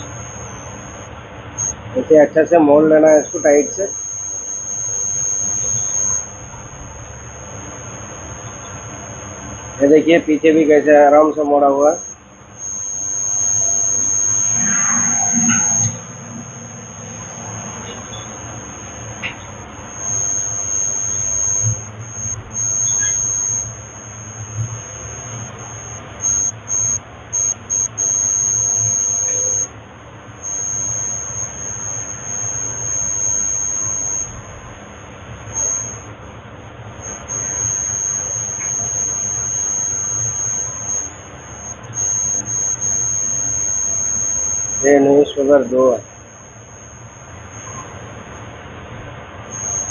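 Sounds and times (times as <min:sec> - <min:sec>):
high-pitched steady whine: 0:00.0 - 0:49.9.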